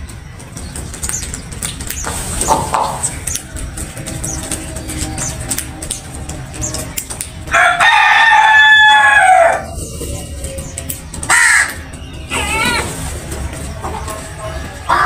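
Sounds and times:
rooster crowing: 0:07.5 - 0:09.7.

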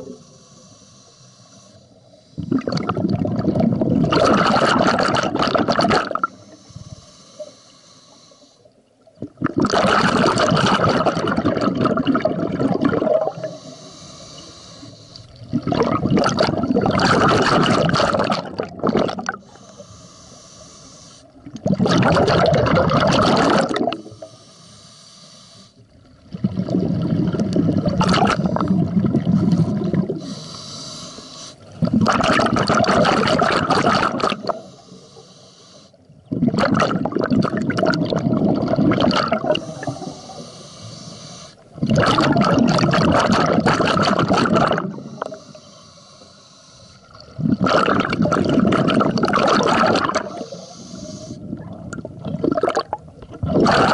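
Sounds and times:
hissing inhalations through regulator: 0:00.0 - 0:03.1, 0:06.0 - 0:09.0, 0:10.8 - 0:36.4, 0:37.8 - 0:53.9
exhaled bubbles gushing underwater: 0:02.4 - 0:06.4, 0:08.9 - 0:13.8, 0:15.3 - 0:19.6, 0:21.3 - 0:24.3, 0:25.9 - 0:30.4, 0:31.6 - 0:34.8, 0:36.1 - 0:40.5, 0:41.6 - 0:45.5, 0:47.0 - 0:53.9.

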